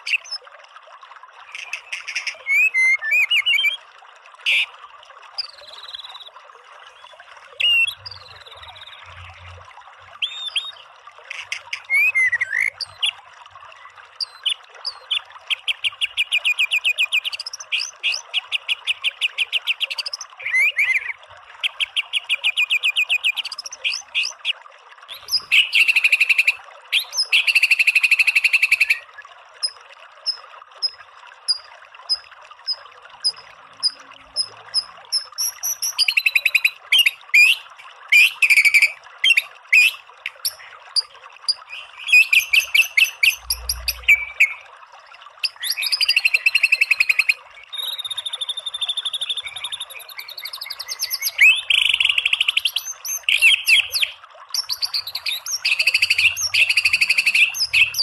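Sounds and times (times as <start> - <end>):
bird singing rapid trills: 38.2 - 44.6, 45.4 - 58.0.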